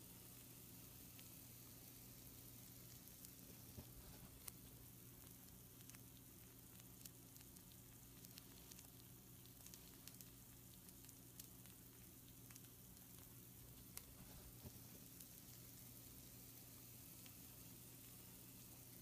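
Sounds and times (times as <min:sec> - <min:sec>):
food sizzling on baking sheet: 0:00.0 - 0:06.0, 0:12.3 - 0:19.0
low steady hum: 0:00.0 - 0:19.0.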